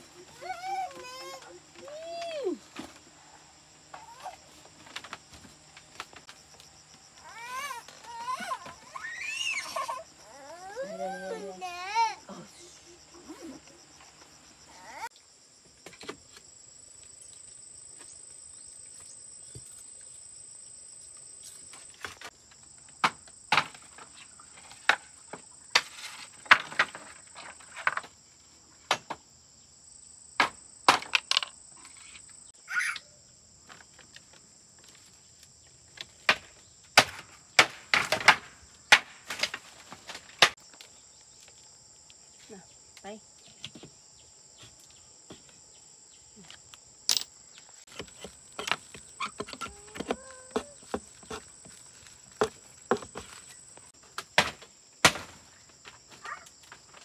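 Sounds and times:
high insect drone: 0:00.0 - 0:37.4
knocks and clatter of bamboo: 0:03.9 - 0:07.1, 0:15.8 - 0:16.4, 0:21.6 - 0:28.2, 0:28.9 - 0:29.2, 0:30.4 - 0:32.2, 0:33.6 - 0:41.6, 0:47.9 - 0:57.0
footsteps on bamboo platform: 0:03.9 - 0:09.0, 0:44.6 - 0:45.6, 0:47.8 - 0:57.0.

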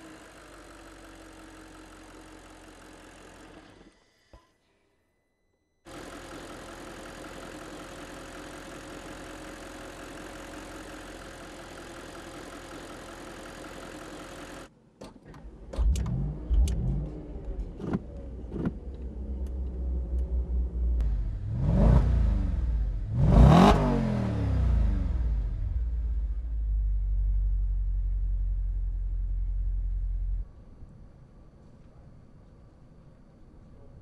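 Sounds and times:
car engine idling: 0:05.9 - 0:14.7, 0:15.4 - 0:30.6
engine revving in sharp blips: 0:15.7 - 0:26.3.

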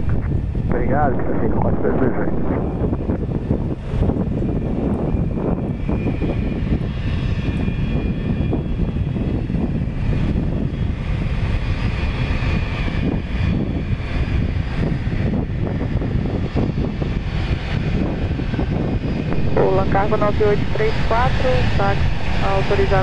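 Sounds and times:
faint high jet whine: 0:00.0 - 0:07.8, 0:17.5 - 0:23.0
jet engines low rumble: 0:00.0 - 0:23.0.

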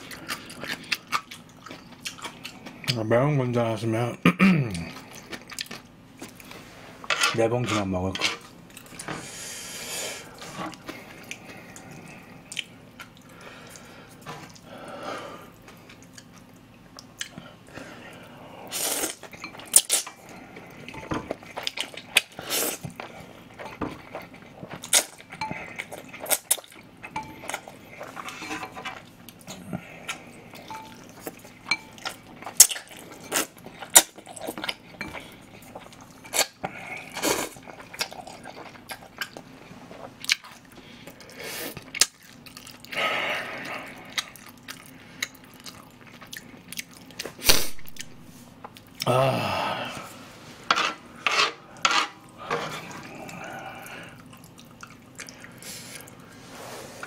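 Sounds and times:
person slurping and chewing noodles: 0:17.1 - 0:48.2, 0:48.9 - 0:57.0.

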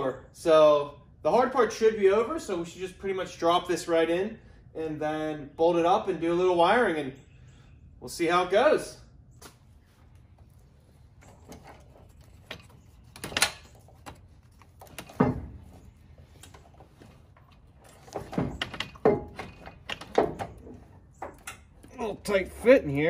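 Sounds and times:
metal winch knocking and scraping: 0:10.8 - 0:22.7.

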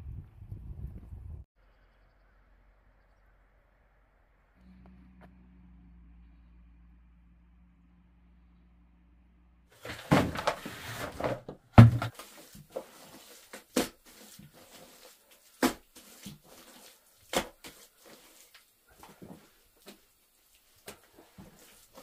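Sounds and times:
hands scraping clay in a tub: 0:09.8 - 0:22.0
heavy thud: 0:11.8 - 0:12.1.

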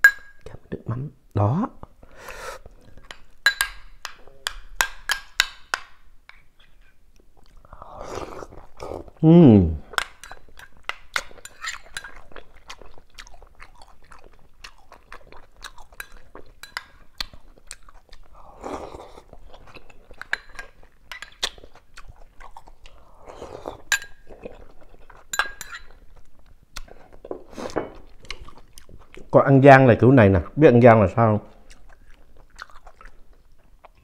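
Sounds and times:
metal spoon clinking on bowl: 0:00.0 - 0:00.5, 0:03.1 - 0:05.8, 0:10.0 - 0:12.2, 0:16.0 - 0:17.0, 0:23.9 - 0:24.3, 0:25.3 - 0:26.0
slurping broth: 0:07.6 - 0:09.2, 0:18.3 - 0:19.3, 0:23.0 - 0:23.9, 0:27.1 - 0:28.0
chewing and crunching: 0:09.8 - 0:29.4, 0:31.5 - 0:34.0.

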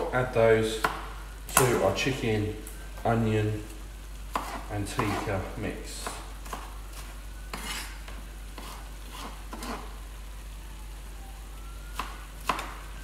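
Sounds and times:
food sizzling in a pan: 0:00.0 - 0:13.0
knife chopping on plastic board: 0:04.3 - 0:05.2.

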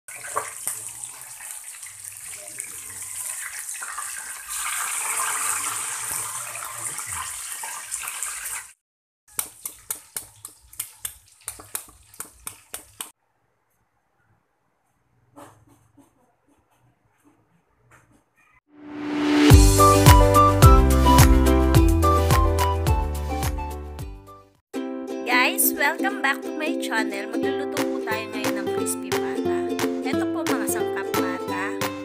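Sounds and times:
meat sizzling in hot oil: 0:00.1 - 0:13.1
sharp oil crackles: 0:00.1 - 0:13.1.

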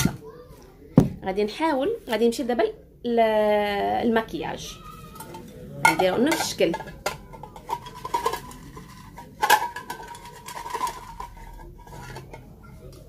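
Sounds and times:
bowl clinking and knocking: 0:05.0 - 0:13.0.

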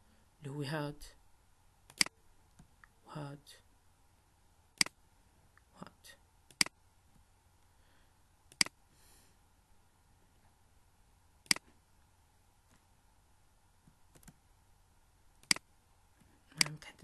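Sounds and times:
computer mouse clicking: 0:01.9 - 0:02.7, 0:04.8 - 0:05.0, 0:06.5 - 0:06.8, 0:08.5 - 0:08.8, 0:13.9 - 0:14.4, 0:15.4 - 0:15.7.

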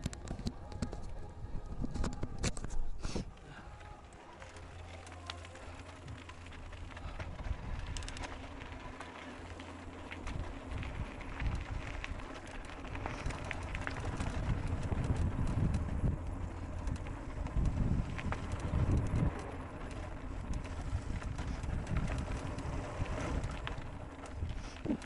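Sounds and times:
wind rumble on microphone: 0:00.0 - 0:03.6, 0:06.0 - 0:08.9, 0:09.8 - 0:25.0
bike clicks and rattles: 0:00.0 - 0:25.0
bike tyres crunching on gravel: 0:03.4 - 0:25.0.

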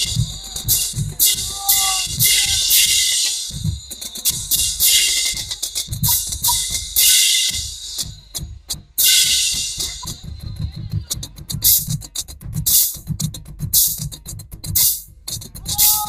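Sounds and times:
snare drum strokes: 0:14.8 - 0:16.0.

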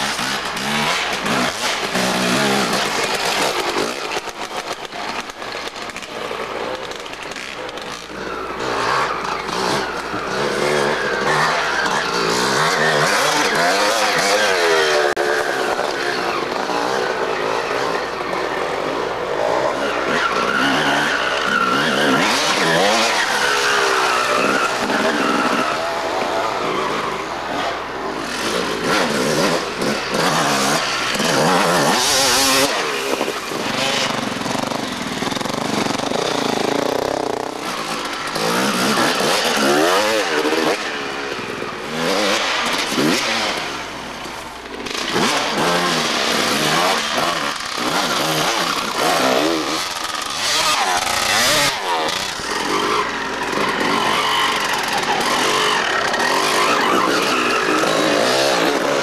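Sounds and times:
dirt bike engines revving: 0:00.0 - 0:59.0.

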